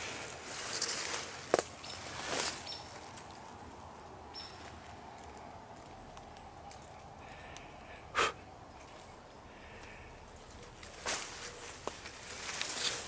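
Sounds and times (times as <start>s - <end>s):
footsteps through tall grass: 0.0s - 3.5s, 10.5s - 13.0s.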